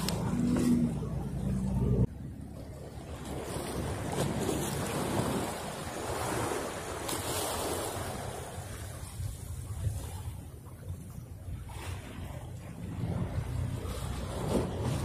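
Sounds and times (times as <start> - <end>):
small waves splashing on rocks: 3.1 - 8.9.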